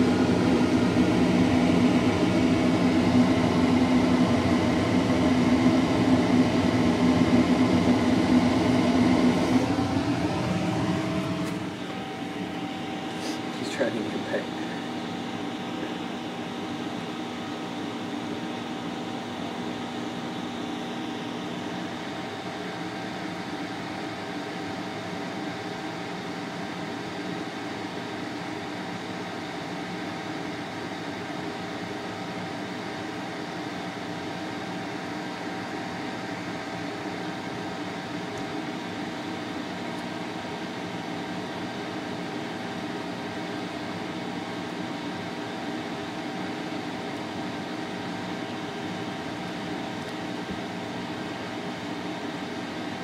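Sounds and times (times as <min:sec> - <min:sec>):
mechanical hum: 0:00.0 - 0:53.0.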